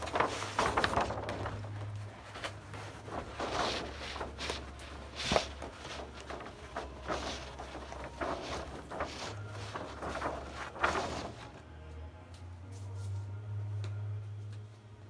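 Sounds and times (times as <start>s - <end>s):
steady low hum: 0.0s - 15.0s
grass mat rustling: 2.3s - 11.5s.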